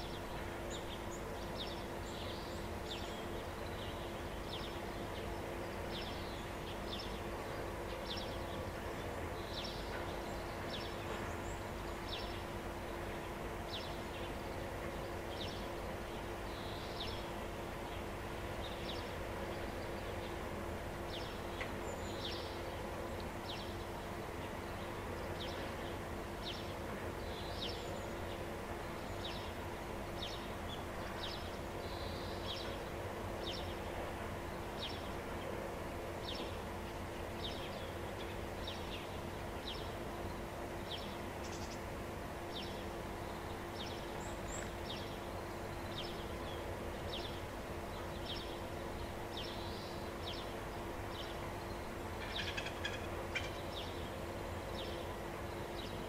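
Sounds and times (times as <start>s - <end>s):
steady background hum: 0.0s - 56.0s
small bird calling: 51.2s - 54.1s.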